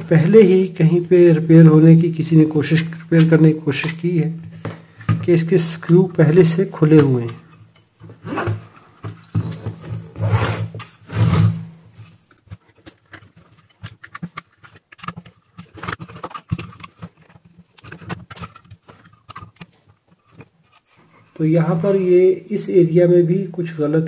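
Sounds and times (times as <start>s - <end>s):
sheet metal scraping: 9.4s - 12.2s.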